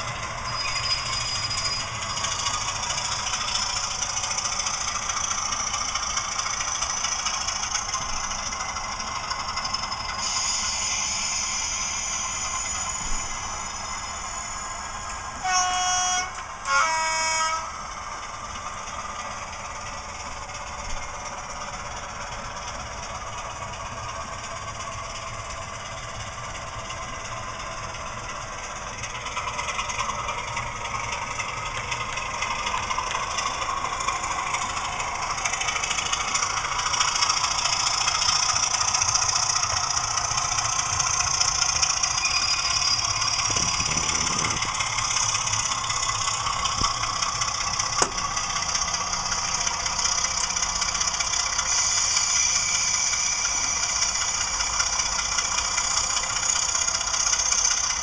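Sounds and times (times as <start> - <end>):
diesel engine running: 0.0 - 58.0
model train horn blasts: 15.4 - 17.9.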